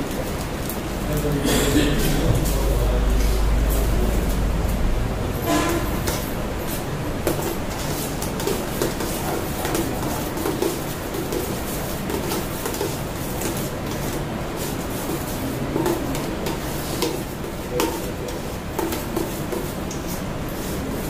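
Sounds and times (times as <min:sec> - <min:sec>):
low hum: 0:00.9 - 0:06.7.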